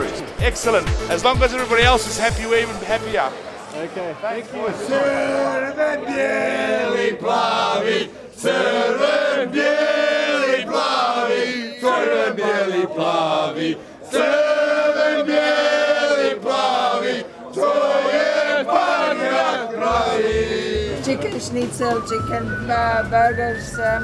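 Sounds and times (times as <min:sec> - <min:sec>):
men singing in chorus: 0:04.9 - 0:21.3.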